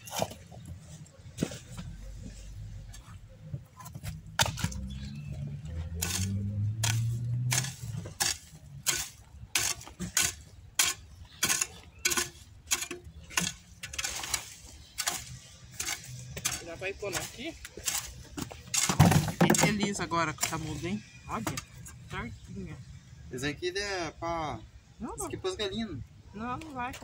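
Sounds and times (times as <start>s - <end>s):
hoe chopping into soil: 4.4s - 4.9s, 5.9s - 19.8s.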